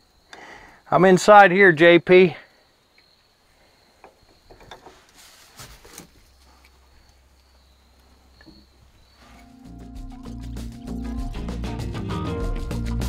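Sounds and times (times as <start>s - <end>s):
music: 9.4s - 13.0s.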